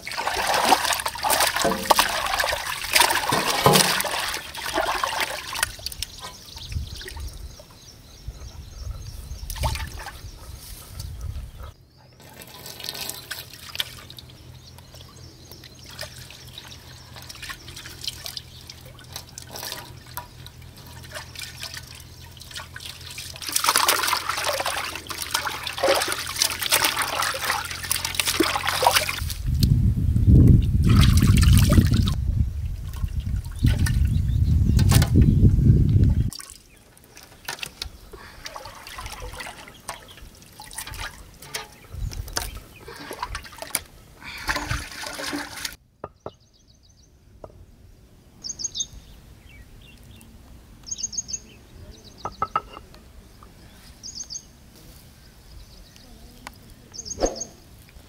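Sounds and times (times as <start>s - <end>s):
water trickling and splashing: 0.0s - 7.8s, 9.4s - 10.2s, 12.2s - 29.7s, 30.6s - 35.3s, 36.0s - 45.8s.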